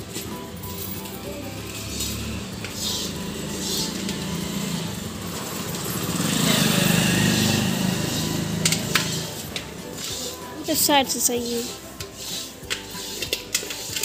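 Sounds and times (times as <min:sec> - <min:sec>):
vehicle engine passing by: 0:01.2 - 0:09.8.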